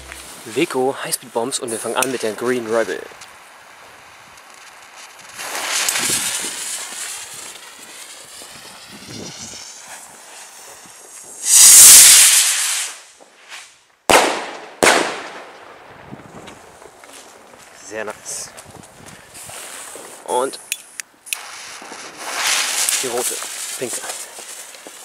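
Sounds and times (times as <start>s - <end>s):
firework bangs: 2.1s - 17.8s, 21.3s - 25.0s
firework rocket whooshing: 2.2s - 17.6s, 18.2s - 20.4s, 21.3s - 25.0s
firework hissing burst: 2.9s - 15.3s, 21.3s - 25.0s.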